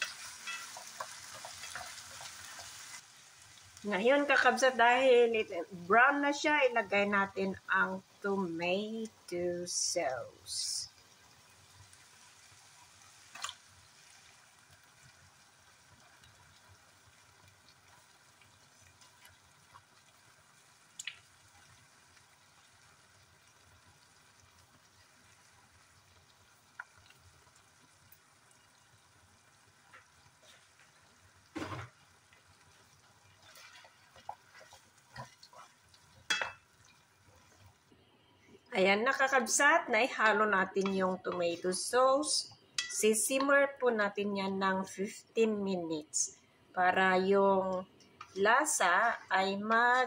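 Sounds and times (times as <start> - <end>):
wooden spoon stirring in pan: 0.0 - 5.2, 11.4 - 23.0, 23.9 - 37.9, 47.3 - 50.0
meat sizzling in a pan: 0.0 - 5.4, 8.7 - 37.9.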